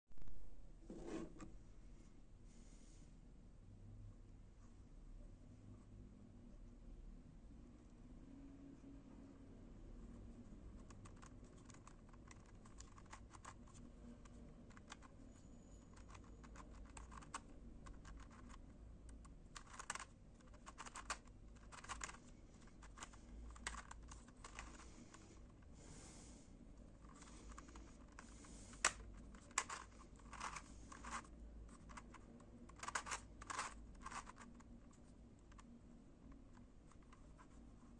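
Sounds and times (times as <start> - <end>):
twisty puzzle clicking: 10.8 - 15.2, 15.8 - 25.6, 27.0 - 37.5.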